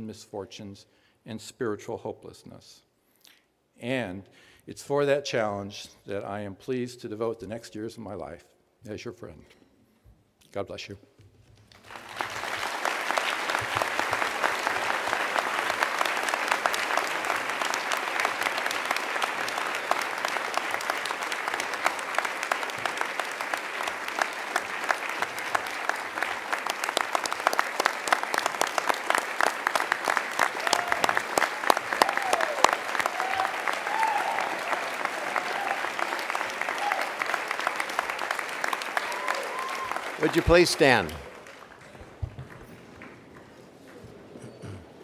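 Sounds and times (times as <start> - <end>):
audience applauding: 11.7 - 45.0.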